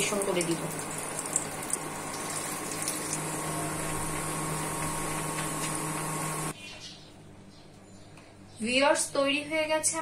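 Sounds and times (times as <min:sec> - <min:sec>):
oil sizzling and bubbling: 0:00.0 - 0:06.5
steady hum: 0:00.0 - 0:06.6.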